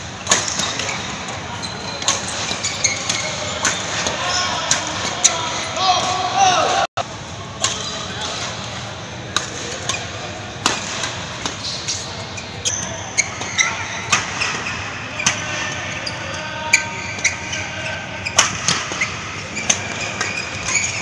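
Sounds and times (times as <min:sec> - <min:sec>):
racket hitting shuttlecock: 0:00.2 - 0:01.4, 0:02.0 - 0:06.1, 0:09.3 - 0:15.7, 0:18.3 - 0:20.8
shoes squeaking on floor: 0:00.2 - 0:04.4, 0:11.5 - 0:21.0.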